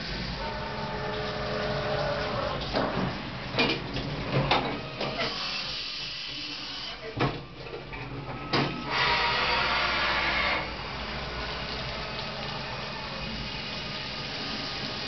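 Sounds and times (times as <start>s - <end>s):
mill spindle running: 0.0s - 15.0s
drill cutting into metal: 5.2s - 7.0s, 8.8s - 10.8s.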